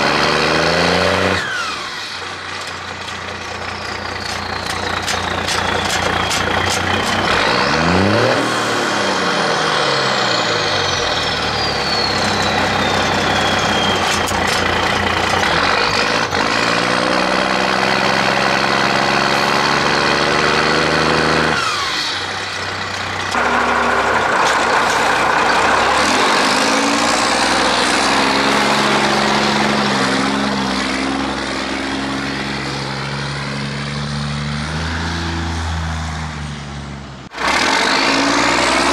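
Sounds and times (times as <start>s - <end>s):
diesel engine exhaust under load: 0.0s - 38.9s
high turbo whistle: 3.6s - 15.1s.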